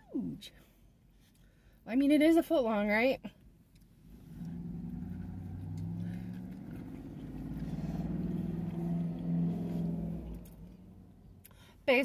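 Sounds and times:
vehicle engine passing by: 0:04.1 - 0:11.5.

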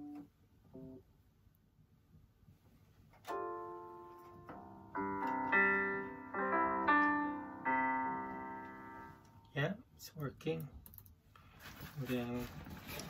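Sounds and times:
piano chords ringing: 0:03.2 - 0:09.6.

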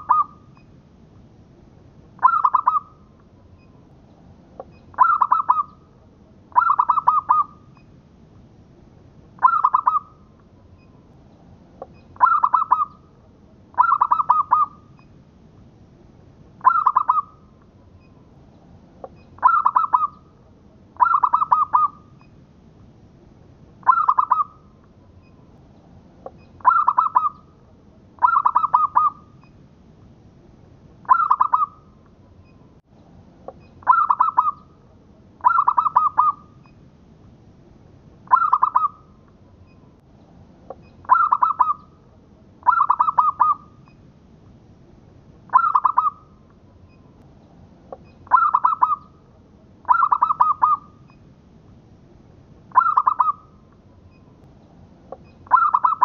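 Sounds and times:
dove cooing: 0:00.0 - 0:00.4, 0:02.2 - 0:03.0, 0:04.9 - 0:05.8, 0:06.5 - 0:07.6, 0:09.4 - 0:10.1, 0:12.2 - 0:13.0, 0:13.8 - 0:14.8, 0:16.6 - 0:17.4, 0:19.4 - 0:20.2, 0:21.0 - 0:22.0, 0:23.8 - 0:24.6, 0:26.6 - 0:27.4, 0:28.2 - 0:29.2, 0:31.1 - 0:31.8, 0:33.8 - 0:34.7, 0:35.4 - 0:36.5, 0:38.3 - 0:39.0, 0:41.0 - 0:41.9, 0:42.6 - 0:43.7, 0:45.5 - 0:46.2, 0:48.3 - 0:49.1, 0:49.9 - 0:50.9, 0:52.7 - 0:53.4, 0:55.5 - 0:56.0.

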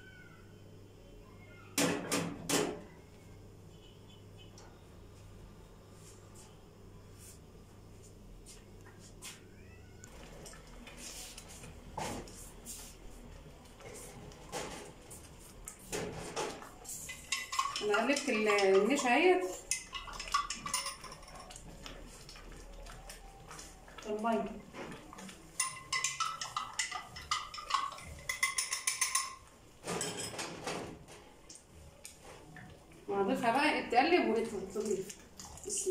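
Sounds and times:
whisk swishing and scraping pot: 0:16.8 - 0:29.2
spoon clinking against glass: 0:17.1 - 0:21.6, 0:25.6 - 0:30.4.

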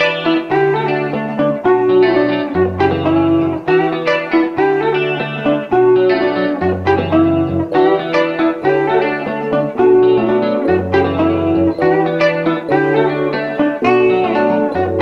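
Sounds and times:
instrumental background music: 0:00.0 - 0:15.0.

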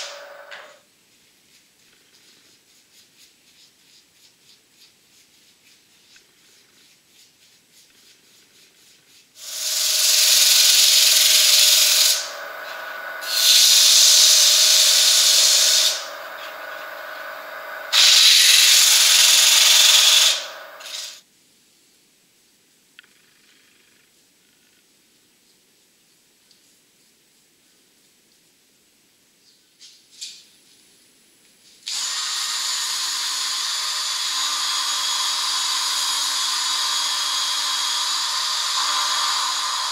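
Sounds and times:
lathe motor hum: 0:00.0 - 0:00.8, 0:09.4 - 0:21.2, 0:32.1 - 0:39.9
sandpaper hissing on spinning wood: 0:00.0 - 0:00.8, 0:01.4 - 0:21.2, 0:31.9 - 0:39.9.

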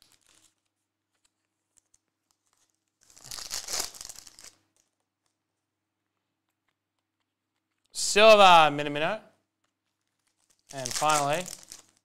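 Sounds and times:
foil wrapper crinkling: 0:00.0 - 0:05.4, 0:09.6 - 0:12.0.

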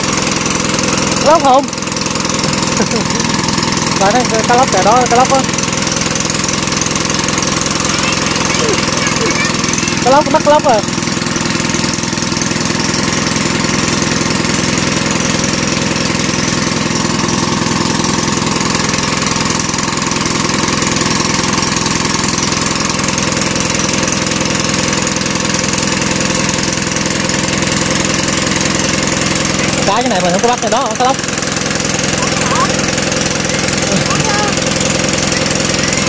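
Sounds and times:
water pump engine chugging: 0:00.0 - 0:36.0.

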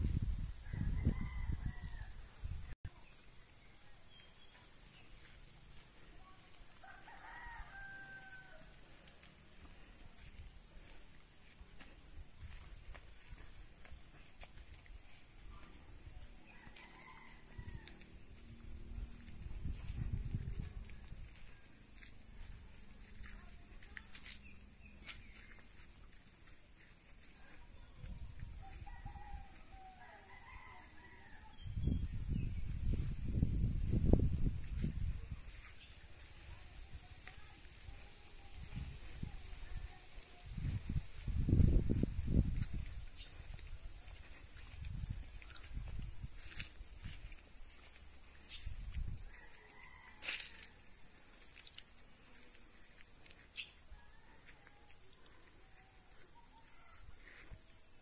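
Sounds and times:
distant rooster crowing: 0:00.6 - 0:02.3, 0:06.8 - 0:09.0, 0:16.5 - 0:18.3, 0:28.6 - 0:32.0, 0:49.3 - 0:50.9, 0:53.8 - 0:57.2
steady high hiss: 0:32.2 - 0:54.1.

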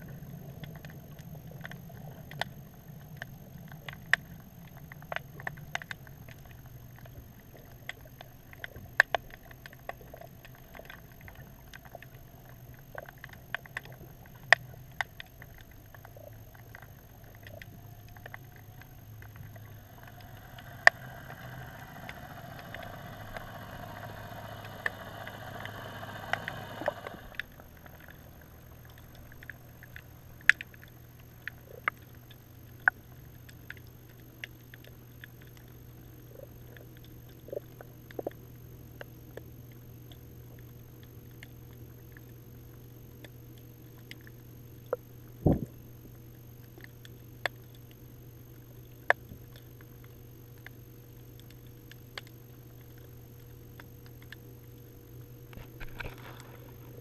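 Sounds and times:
underwater low hum: 0:00.0 - 0:57.0
boat motor whine: 0:10.0 - 0:31.7.

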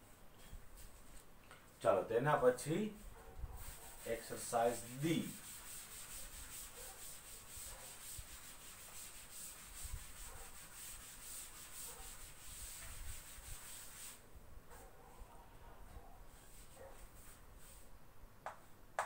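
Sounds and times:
chalk being wiped off blackboard: 0:02.7 - 0:14.2, 0:16.3 - 0:17.9.

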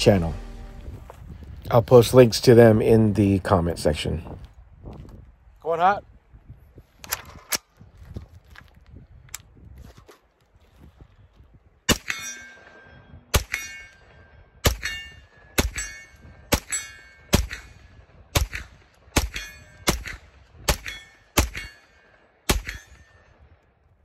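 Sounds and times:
gunshots: 0:16.5 - 0:21.9, 0:22.5 - 0:23.0.

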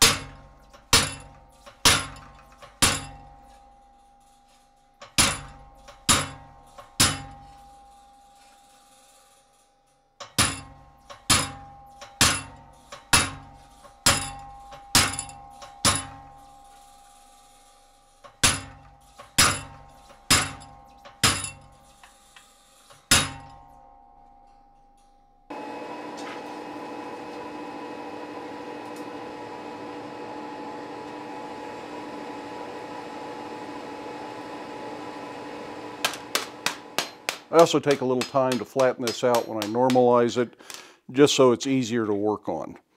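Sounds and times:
hammer striking chisel into steel: 0:00.0 - 0:03.7, 0:05.0 - 0:08.0, 0:10.2 - 0:16.9, 0:18.2 - 0:22.2, 0:22.9 - 0:24.7, 0:36.0 - 0:40.8.

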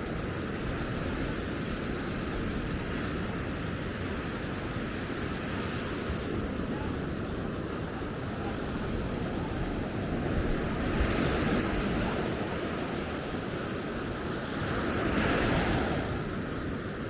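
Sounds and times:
sea waves breaking on a beach: 0:00.0 - 0:17.0
wind buffeting microphone: 0:00.0 - 0:17.0.

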